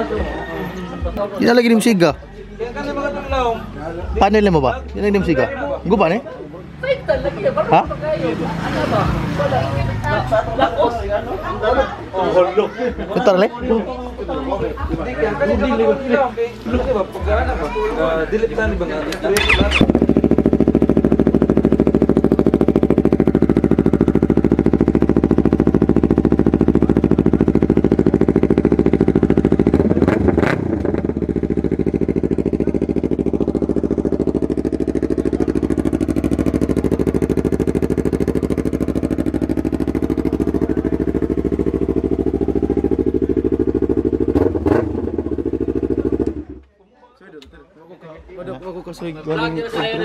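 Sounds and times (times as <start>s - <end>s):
motorcycle engine running: 18.1s - 46.6s.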